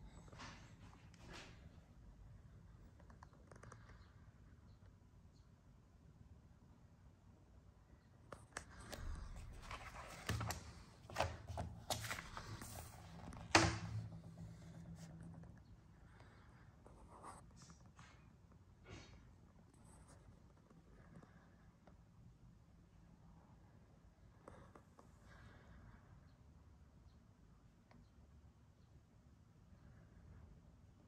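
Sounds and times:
handling rustling: 8.6 - 14.6
clicks and knocks: 9.6 - 14.1.

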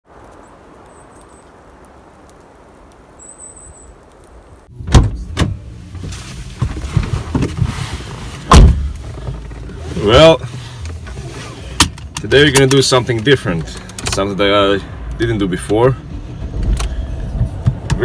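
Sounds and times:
faint outdoor hiss: 0.1 - 18.0
loud thumps: 4.7 - 7.7, 8.4 - 9.6
knocks and rustling in a car: 4.8 - 14.2, 16.4 - 18.0.

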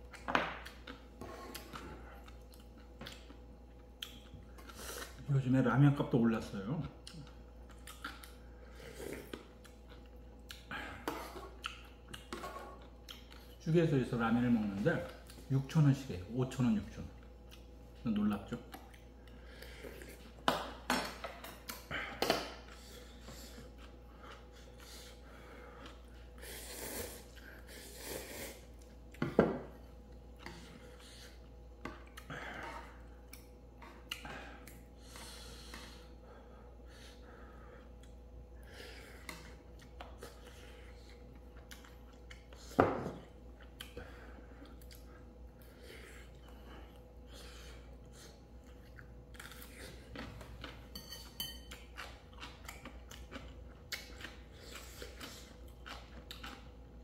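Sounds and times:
utensils clinking against bowl: 50.6 - 52.0.

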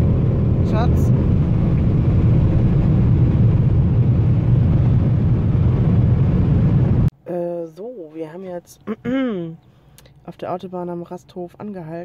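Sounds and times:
car engine drone: 0.0 - 7.1
tyre and wind noise: 0.0 - 7.1.

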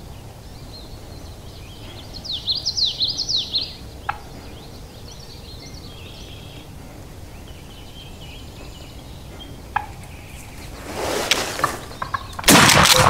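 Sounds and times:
small birds chirping: 0.0 - 12.6
turkey alarm putt: 2.4 - 4.6, 8.9 - 13.0.

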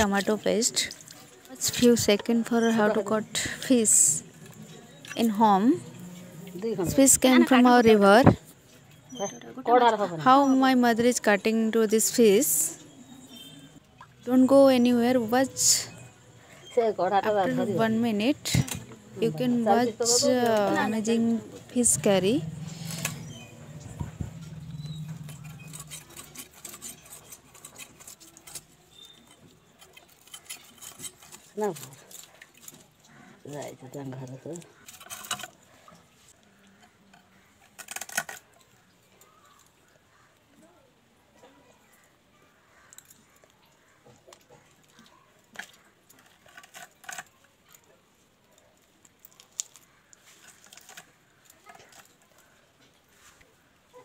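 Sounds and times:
fish scales scraping on blade: 24.8 - 32.2.

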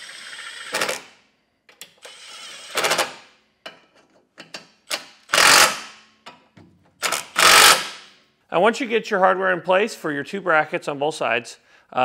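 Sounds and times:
impact driver hammering: 5.3 - 6.0, 7.0 - 8.1.

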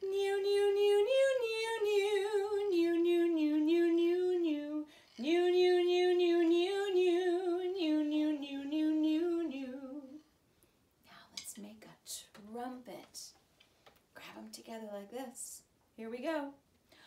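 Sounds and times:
woman singing violin-like melody: 0.0 - 10.2.

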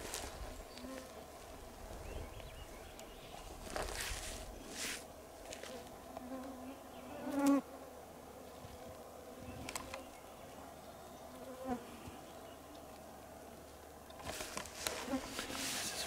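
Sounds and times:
flying insects buzzing: 3.6 - 12.2, 14.2 - 16.0.

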